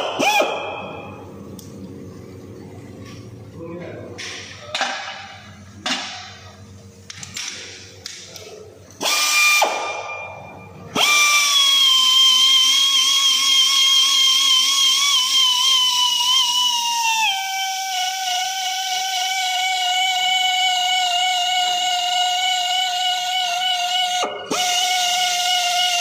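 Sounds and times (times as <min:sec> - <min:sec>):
pneumatic die grinder whine: 0:00.0 - 0:01.2, 0:09.0 - 0:26.0.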